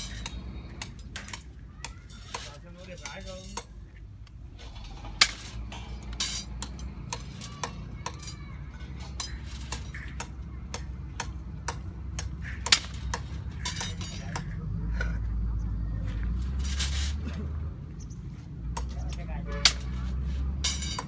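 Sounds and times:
metallic clinks and clanks: 0:00.0 - 0:03.8, 0:04.5 - 0:14.6, 0:18.8 - 0:21.0.

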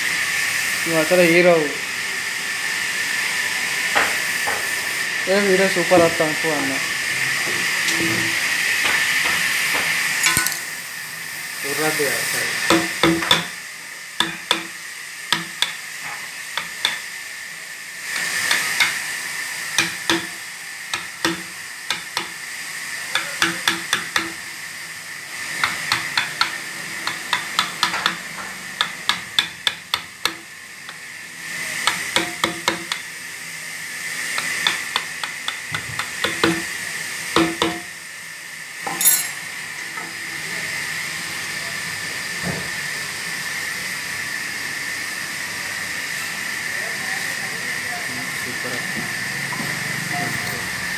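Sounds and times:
mallet tapping chisel into wood: 0:12.7 - 0:13.5, 0:14.2 - 0:14.7, 0:16.6 - 0:17.0, 0:19.8 - 0:20.3, 0:20.9 - 0:22.3, 0:23.2 - 0:24.4, 0:25.6 - 0:28.2, 0:28.8 - 0:31.0, 0:31.8 - 0:33.0, 0:34.4 - 0:36.7, 0:37.4 - 0:37.8.

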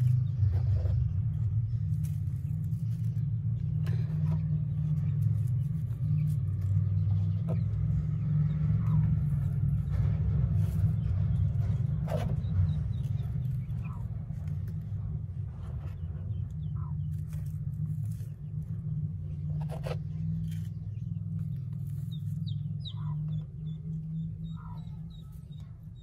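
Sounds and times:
clicks and rustles of straw: 0:00.0 - 0:26.0
low rumble: 0:00.0 - 0:26.0.

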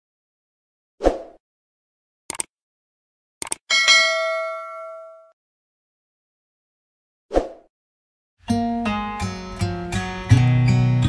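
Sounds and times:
mouse double clicks: 0:02.3 - 0:02.5, 0:03.4 - 0:03.6
notification bell ding: 0:03.7 - 0:05.4.

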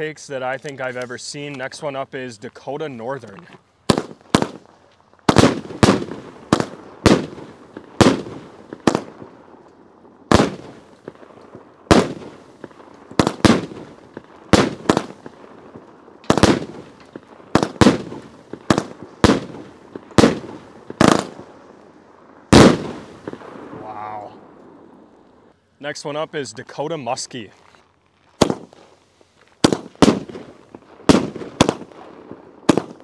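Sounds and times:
firework cake bangs: 0:03.8 - 0:09.4, 0:10.3 - 0:11.3, 0:11.9 - 0:15.5, 0:16.2 - 0:21.5, 0:22.5 - 0:23.8, 0:28.4 - 0:28.8, 0:29.6 - 0:33.0.

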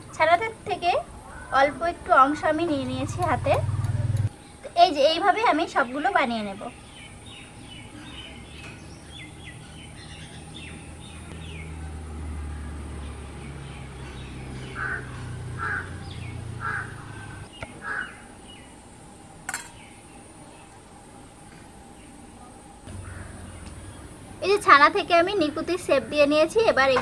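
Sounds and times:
small birds chirping: 0:00.0 - 0:12.2, 0:12.8 - 0:18.9
crow cawing: 0:14.8 - 0:18.2, 0:22.9 - 0:23.5.

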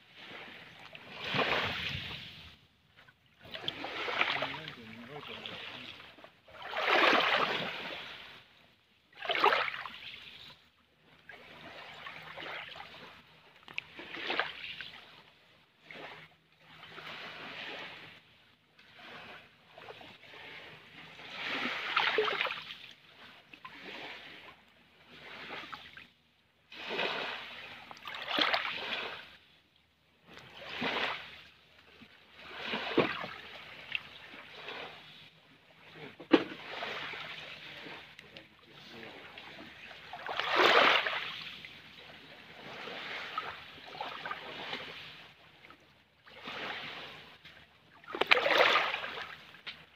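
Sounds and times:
small waves washing on gravel shore: 0:00.1 - 0:02.5, 0:03.5 - 0:08.4, 0:26.7 - 0:29.4, 0:35.9 - 0:45.4, 0:46.3 - 0:47.4, 0:48.0 - 0:49.6.

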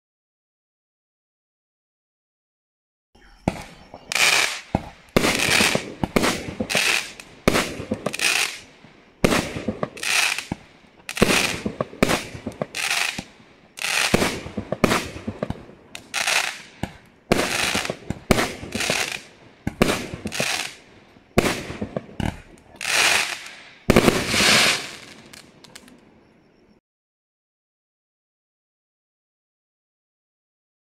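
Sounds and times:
fireworks bangs: 0:03.2 - 0:26.0.

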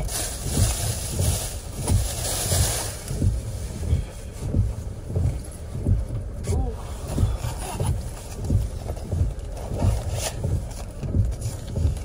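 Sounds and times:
plastic bag rustling: 0:00.0 - 0:04.2
low repeating thump: 0:00.4 - 0:12.0.

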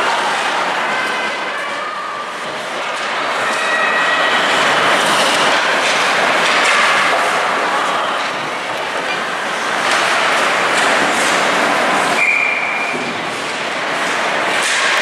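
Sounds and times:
hockey sticks clattering: 0:02.6 - 0:15.0
skates scraping on ice: 0:09.4 - 0:15.0.

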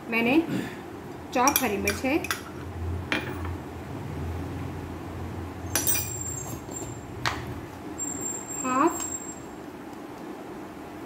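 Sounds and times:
low steady hum: 0:00.0 - 0:11.0
dishes clinking: 0:05.7 - 0:06.6.

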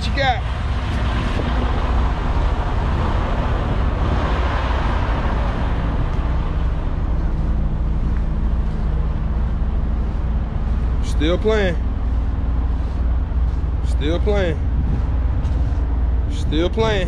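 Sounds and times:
diesel truck engines idling: 0:00.0 - 0:17.0
rushing noise: 0:00.0 - 0:17.0.

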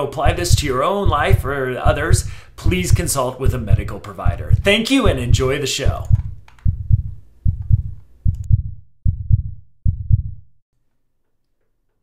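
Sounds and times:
heartbeat thumps: 0:00.2 - 0:10.6.

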